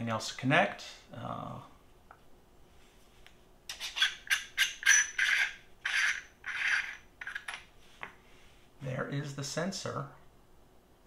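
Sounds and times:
threaded cap scraping: 3.7s - 8.2s.

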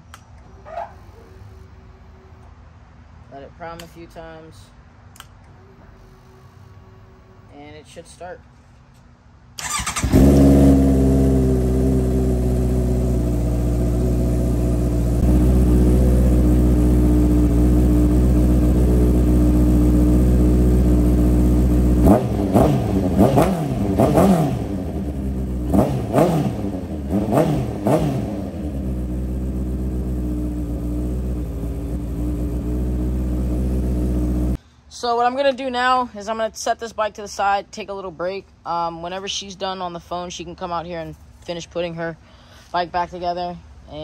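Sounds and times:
engine revving: 9.6s - 34.6s
motorcycle engine idling: 9.6s - 34.6s.

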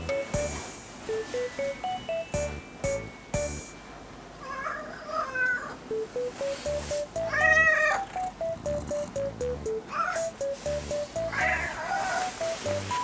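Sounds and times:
background music with steady beat: 0.0s - 4.1s, 5.9s - 13.0s
cat meowing: 4.4s - 5.8s, 7.3s - 8.1s, 9.9s - 10.2s, 11.3s - 12.3s.

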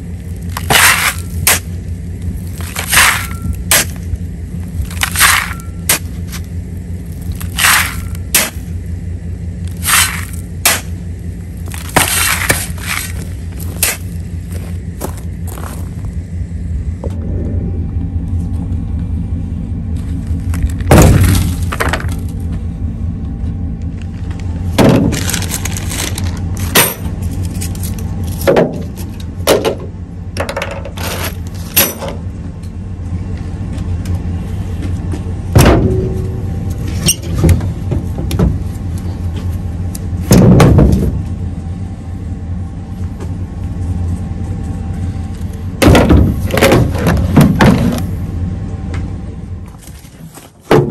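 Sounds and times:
steady low hum: 0.0s - 50.9s
items thudding into truck bed: 20.8s - 22.3s, 24.7s - 27.1s, 35.5s - 36.3s, 40.2s - 41.2s, 45.8s - 48.1s, 50.1s - 50.9s.

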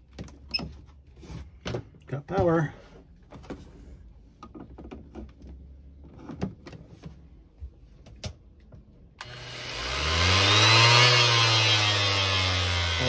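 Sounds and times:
orbital sander on wood: 9.2s - 13.0s.

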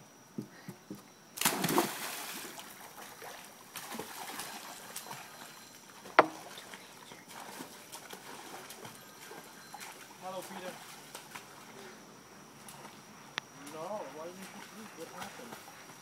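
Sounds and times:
dive splash into pool: 1.4s - 2.7s
water sloshing: 1.4s - 11.8s
light swimming splashes: 1.4s - 12.0s, 13.6s - 16.0s.

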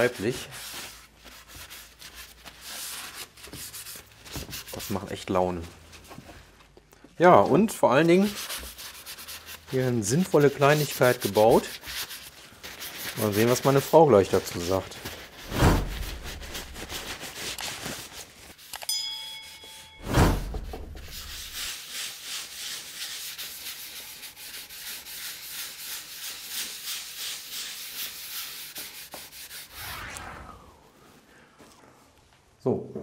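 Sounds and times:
low thumps: 15.5s - 16.6s, 20.0s - 21.4s
short bright chime: 18.8s - 21.3s.

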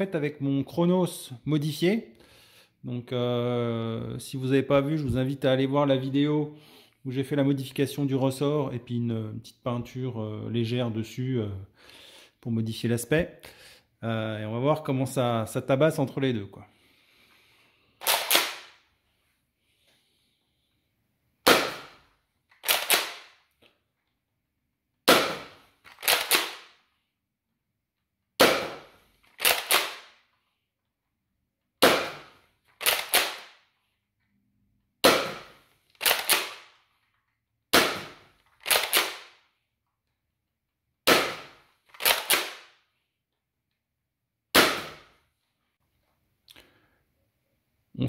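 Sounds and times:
toy blaster firing snap: 22.6s - 23.3s, 25.2s - 26.7s, 29.4s - 30.1s, 32.8s - 33.5s, 35.1s - 36.7s, 37.8s - 39.3s.

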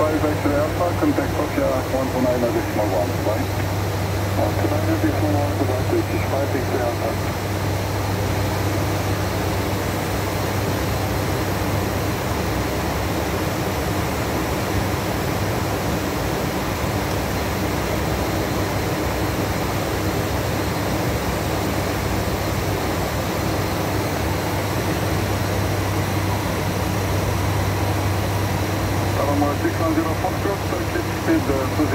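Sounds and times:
low steady hum: 0.0s - 14.5s
turboprop engines droning: 0.0s - 31.9s.

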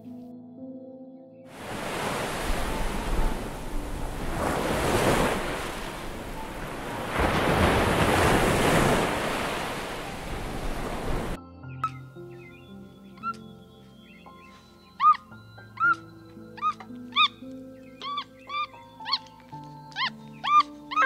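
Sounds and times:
sea waves on a beach: 1.5s - 11.4s
wind on microphone: 1.6s - 11.4s.

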